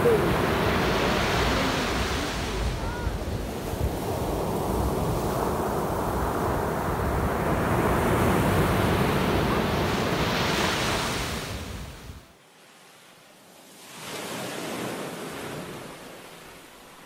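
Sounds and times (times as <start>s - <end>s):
wind buffeting microphone: 0.0s - 10.2s
ocean surf breaking: 0.0s - 12.2s.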